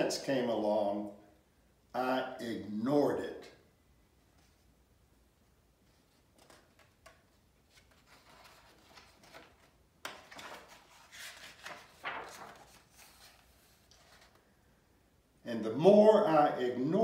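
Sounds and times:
paper rustling: 5.8s - 14.5s.

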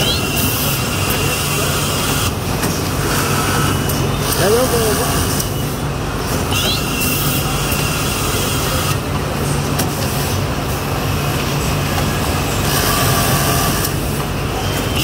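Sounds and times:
sewing machine running: 12.6s - 15.0s.

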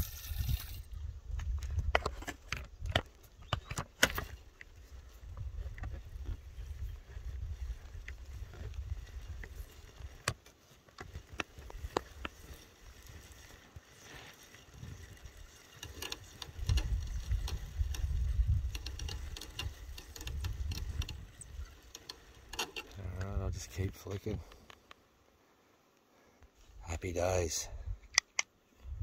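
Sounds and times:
fishing reel clicking: 0.0s - 0.9s, 15.2s - 22.9s
wind buffeting microphone: 4.8s - 10.2s, 16.2s - 22.0s, 28.8s - 29.0s.

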